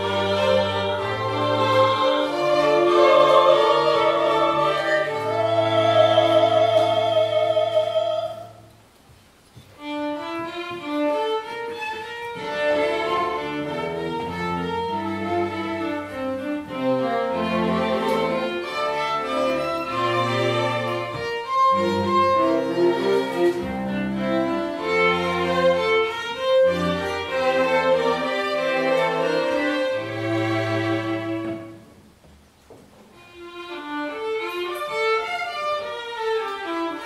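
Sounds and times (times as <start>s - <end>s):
soprano singing with vibrato: 0.0s - 8.7s
violins and cello playing: 0.0s - 8.8s, 9.8s - 32.0s, 33.2s - 37.0s.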